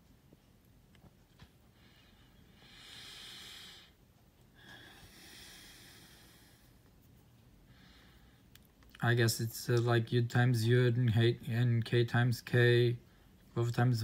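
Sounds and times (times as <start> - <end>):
soft breathing: 1.4 - 8.8, 13.0 - 13.5.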